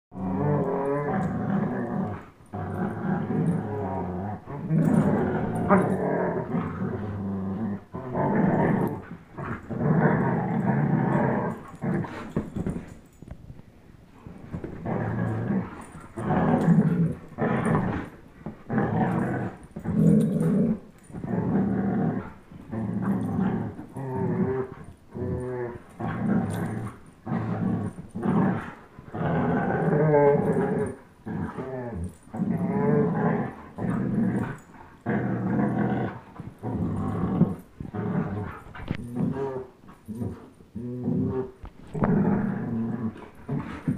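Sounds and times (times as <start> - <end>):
dogs play-growling: 0.1 - 13.6, 14.2 - 43.9.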